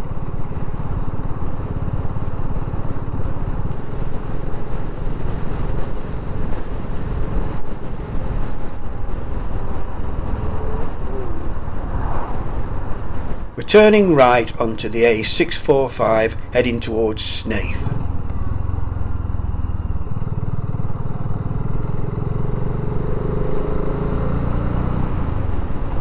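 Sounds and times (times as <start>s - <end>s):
riding wind rush: 0.0s - 20.8s
motorcycle engine running: 18.0s - 23.8s.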